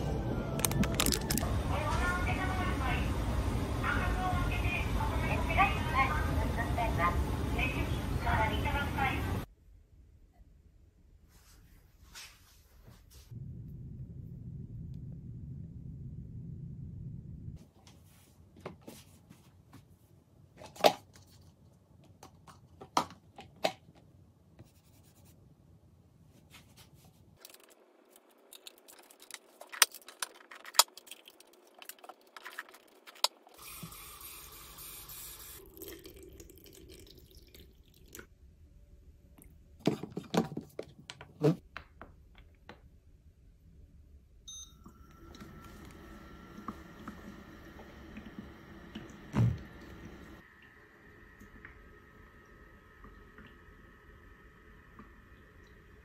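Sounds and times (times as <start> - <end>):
water pouring: 30.8 - 38.3.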